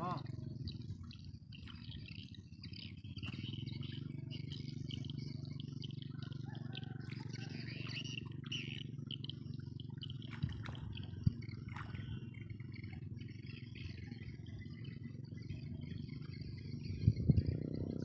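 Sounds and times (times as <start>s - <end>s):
small animals chirping: 0.0s - 18.0s
steady low rumble: 14.4s - 18.0s.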